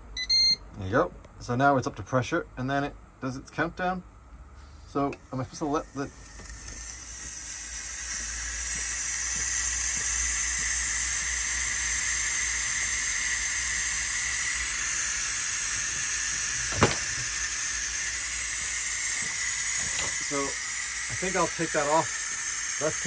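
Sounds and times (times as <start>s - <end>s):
steam hissing from pressure cooker: 5.6s - 23.0s.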